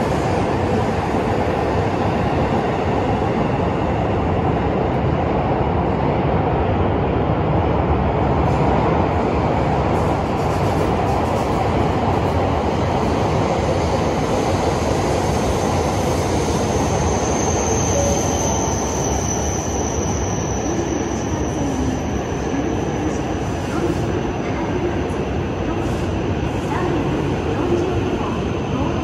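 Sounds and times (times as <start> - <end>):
train wheels rumbling on rail: 0.0 - 29.0.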